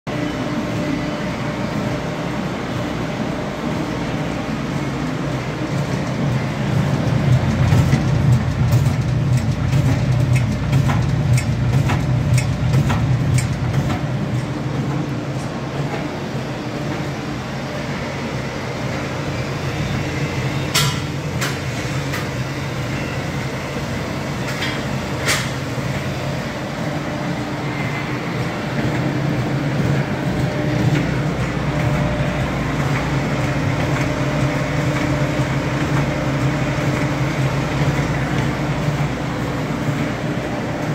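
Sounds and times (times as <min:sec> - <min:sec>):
low machine hum: 0:00.1 - 0:40.9.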